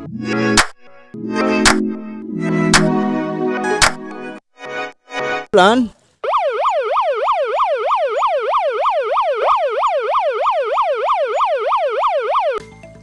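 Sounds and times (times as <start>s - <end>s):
toy siren wailing: 6.7s - 12.6s.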